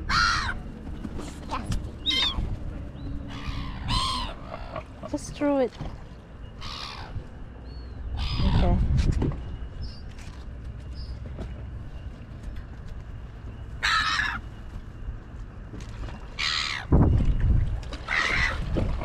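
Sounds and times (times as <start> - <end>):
seagulls calling: 0.0 - 8.9, 13.4 - 15.0, 16.1 - 17.2, 17.9 - 19.0
steady low rumble: 0.0 - 19.0.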